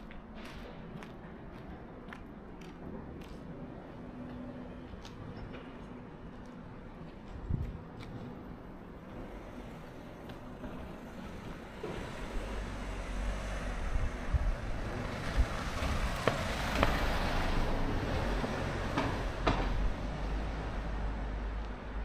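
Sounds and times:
vehicle passing by: 0:11.3 - 0:22.0.

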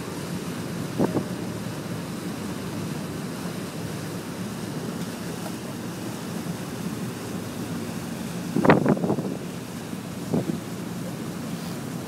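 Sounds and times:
boat engine rumble: 0:00.0 - 0:12.0
rushing wake: 0:00.0 - 0:12.0
wind on microphone: 0:00.8 - 0:01.4, 0:08.4 - 0:09.6, 0:10.2 - 0:10.7.

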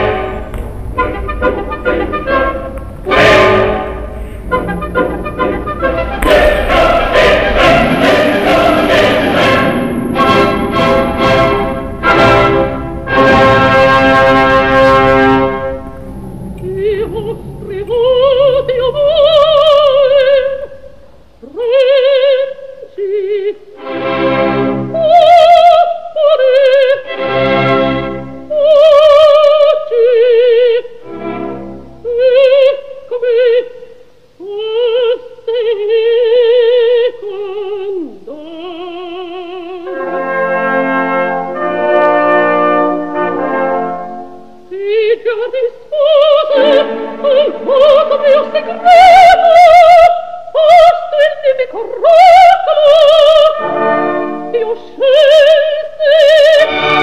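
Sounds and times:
orchestral accompaniment: 0:00.0 - 0:20.8, 0:39.8 - 0:44.6, 0:46.4 - 0:49.5
operatic voice singing: 0:01.2 - 0:13.4, 0:44.7 - 0:53.7.

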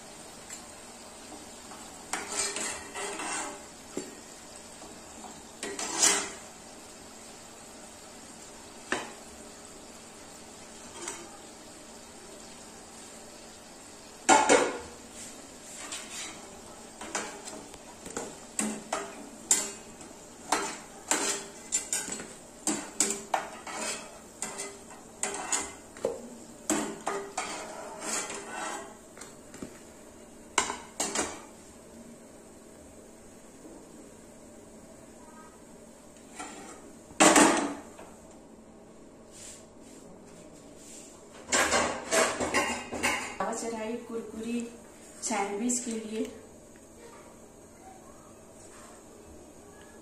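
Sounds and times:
utensils and dishes clattering: 0:05.6 - 0:06.4, 0:15.8 - 0:25.9, 0:26.7 - 0:29.0, 0:30.6 - 0:31.4, 0:41.4 - 0:43.6.

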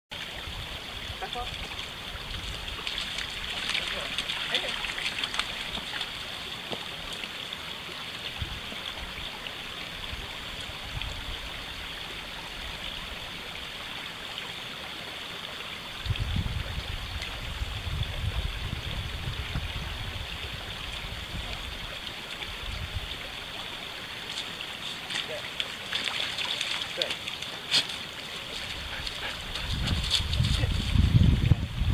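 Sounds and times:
creek trickling: 0:00.1 - 0:31.9.

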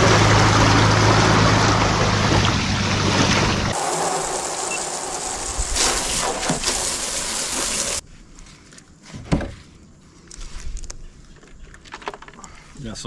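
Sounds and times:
water spraying from a hose: 0:00.0 - 0:08.0.

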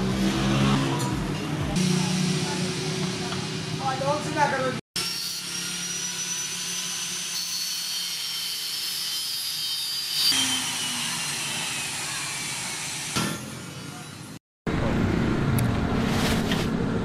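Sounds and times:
angle grinder grinding steel: 0:05.0 - 0:14.4.

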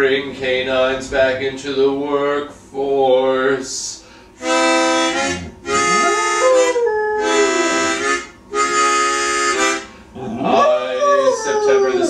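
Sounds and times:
harmonica chords: 0:04.3 - 0:10.2
dog howling: 0:05.7 - 0:08.0, 0:10.2 - 0:12.0.

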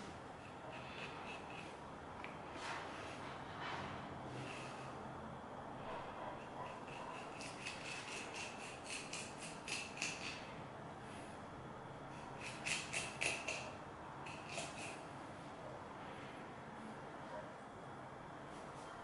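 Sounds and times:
knife rasping through fish skin: 0:06.7 - 0:10.4, 0:12.4 - 0:13.7, 0:14.3 - 0:15.0.

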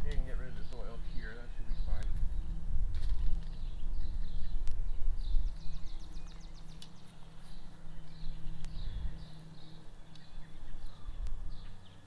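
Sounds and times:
low steady rumble: 0:00.0 - 0:12.0
songbirds chirping: 0:00.0 - 0:12.0
sharp clicks: 0:06.3 - 0:07.0.

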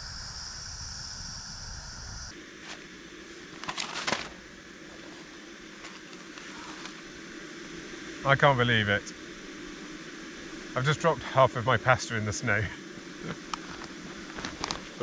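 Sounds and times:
rattling clatter of small pieces: 0:03.6 - 0:04.4.

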